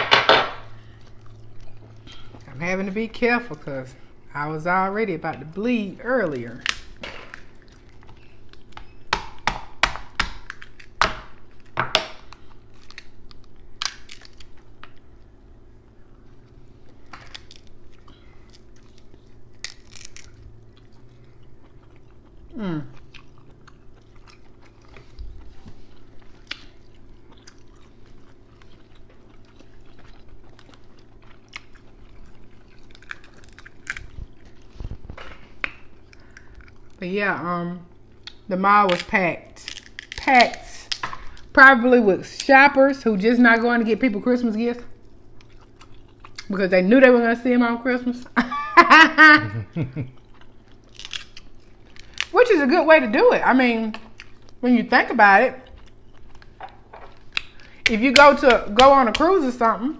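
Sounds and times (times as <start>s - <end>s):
crab shells cracking: 6.2s - 15.0s, 17.0s - 21.0s, 26.4s - 37.0s, 38.2s - 41.5s, 50.2s - 52.4s, 55.7s - 59.3s
chewing close to microphone: 6.6s - 8.8s, 16.4s - 37.0s, 45.1s - 46.5s, 49.7s - 52.3s, 55.5s - 57.9s.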